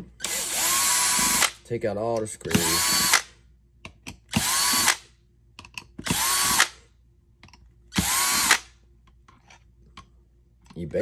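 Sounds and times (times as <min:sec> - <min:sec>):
cordless electric screwdriver running: 0:00.2 - 0:01.5, 0:04.4 - 0:05.0, 0:06.1 - 0:06.7, 0:08.0 - 0:08.6.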